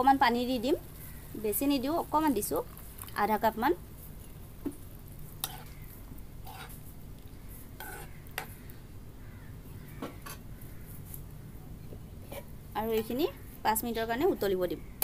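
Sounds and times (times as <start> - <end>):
spoon scraping in wok: 5.3 - 8.7, 12.2 - 13.2.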